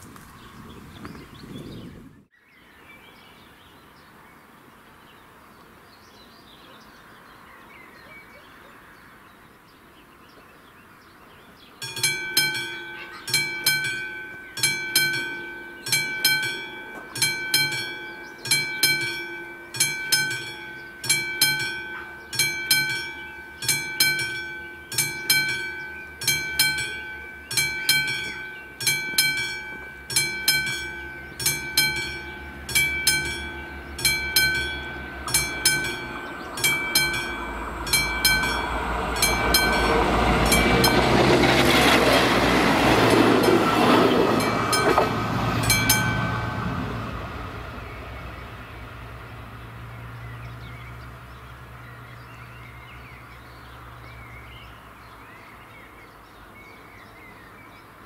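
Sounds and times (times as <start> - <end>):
level crossing bell ringing: 11.8 - 47.2.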